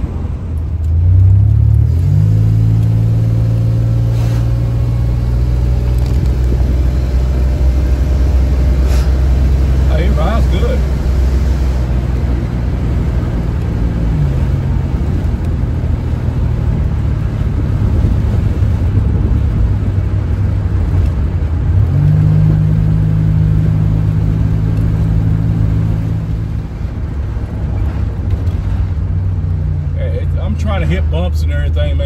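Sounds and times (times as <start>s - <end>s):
car engine and road noise: 0.0s - 32.0s.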